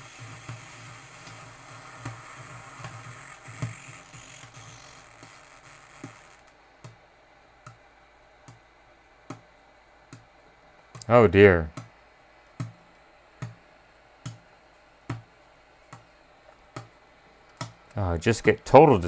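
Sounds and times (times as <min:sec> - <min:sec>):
hissy distorted amplifier audio: 0:00.0 - 0:09.2, 0:13.0 - 0:19.0.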